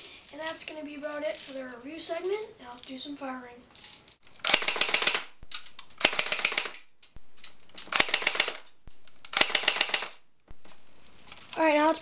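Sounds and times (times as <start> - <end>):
airsoft gun firing full auto: 4.4 - 5.4, 6.0 - 6.9, 7.9 - 8.7, 9.3 - 10.2.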